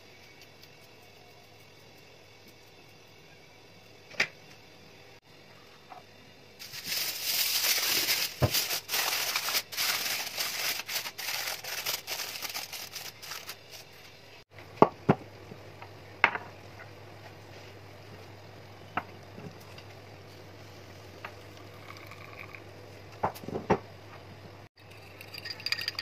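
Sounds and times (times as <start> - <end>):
aluminium foil crinkling and tearing: 6.6 - 14.0.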